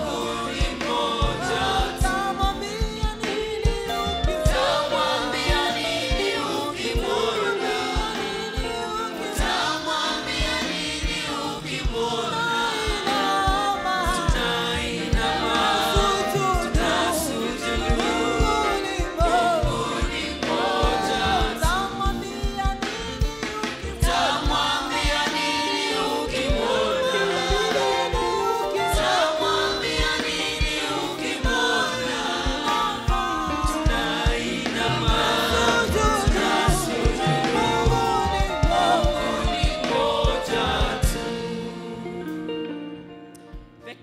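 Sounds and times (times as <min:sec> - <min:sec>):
band with steady drum beat: 0:00.0 - 0:42.0
gospel singing with group voices: 0:00.0 - 0:44.0.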